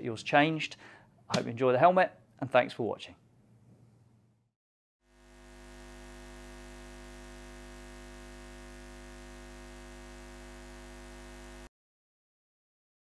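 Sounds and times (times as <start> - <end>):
neon sign electrical hum: 5.1 - 11.7.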